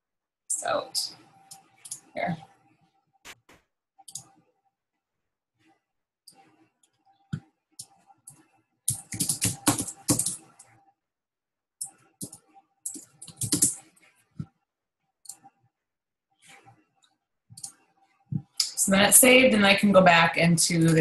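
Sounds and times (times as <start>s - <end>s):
computer keyboard typing: 7.8s - 10.7s, 12.2s - 13.9s.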